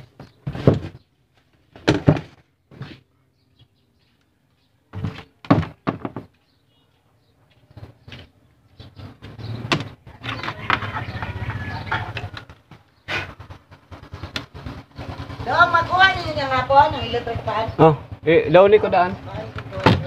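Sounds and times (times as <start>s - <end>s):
plastic housing knocks and thuds: 0.2s - 1.0s, 1.7s - 2.9s, 4.9s - 6.4s, 9.6s - 10.8s, 19.6s - 20.0s.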